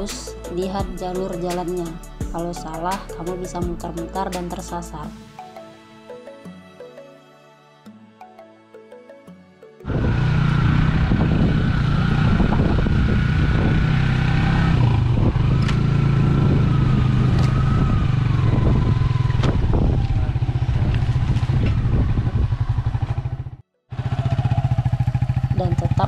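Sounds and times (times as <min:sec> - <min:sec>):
small motorcycle engine: 0:09.8 - 0:26.0.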